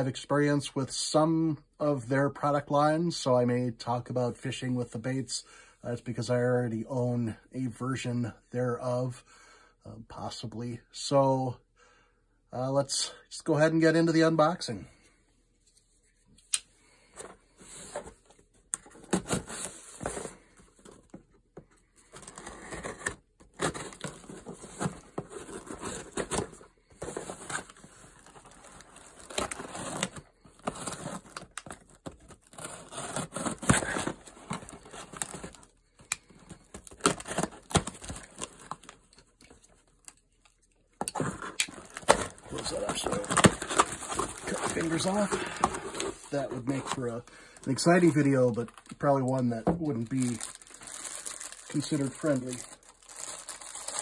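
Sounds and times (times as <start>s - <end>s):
packing tape crinkling: 27.2s - 47.1s, 47.7s - 54.0s.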